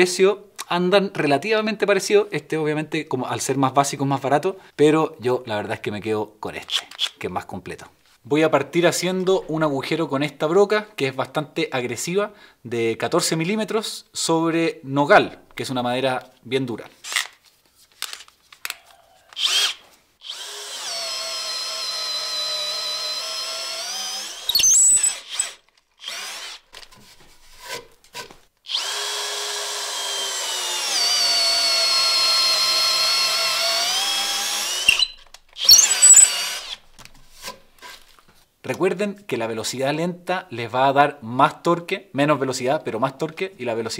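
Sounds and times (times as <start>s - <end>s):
cordless drill boring into wood: 19.3s - 26.7s, 28.7s - 36.8s.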